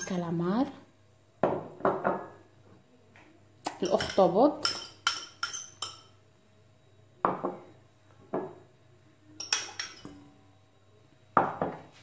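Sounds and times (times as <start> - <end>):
metal bowl clinking: 3.7 - 6.2, 9.4 - 10.3.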